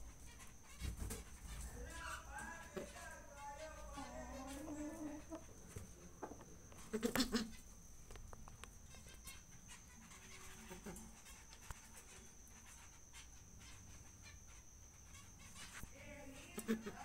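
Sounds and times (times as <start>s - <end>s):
pigeon cooing: 3.5s - 5.5s.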